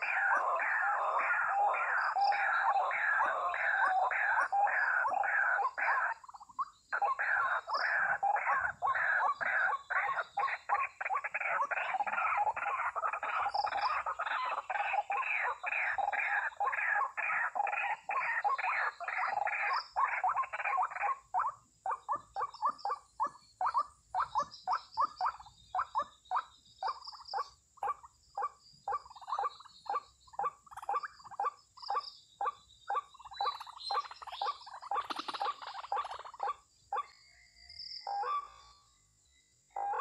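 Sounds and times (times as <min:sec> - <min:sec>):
waterhen calling: 0:00.0 - 0:27.0, 0:32.9 - 0:37.1, 0:39.8 - 0:40.0.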